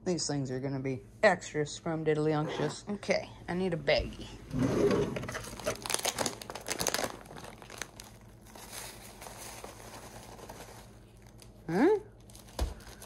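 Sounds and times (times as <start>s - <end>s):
plastic zipper bag crinkling: 5.2s - 13.0s
crumbs poured into plastic bag: 5.8s - 11.4s.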